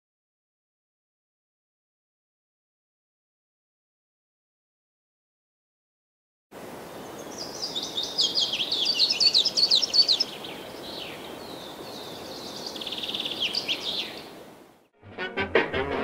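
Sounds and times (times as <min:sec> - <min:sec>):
songbird chirping: 0:06.6 - 0:14.9
buzzy bird trill: 0:07.2 - 0:14.3.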